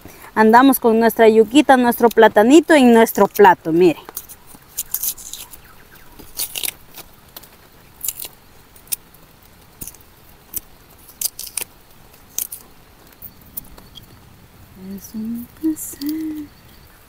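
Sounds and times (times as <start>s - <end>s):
knife scraping root peel: 4.2s - 7.0s, 8.0s - 9.0s, 9.8s - 12.6s.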